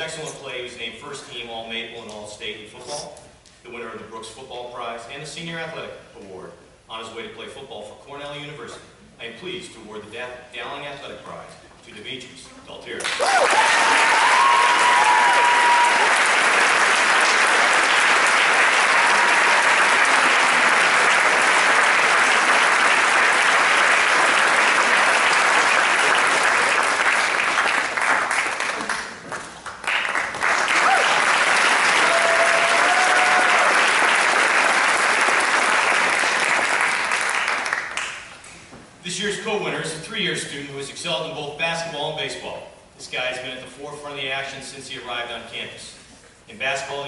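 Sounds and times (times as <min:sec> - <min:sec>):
audience applauding: 0:13.0 - 0:38.3.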